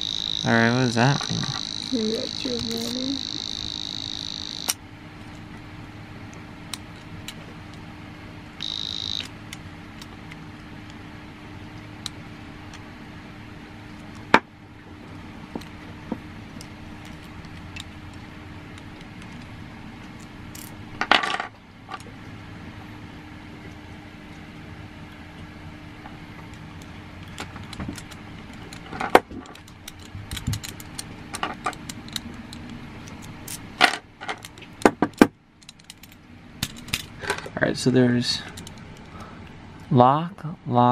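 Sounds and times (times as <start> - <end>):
short high beep: 8.6 - 9.3
metallic clicks and rattles of lock: 27.2 - 37.1.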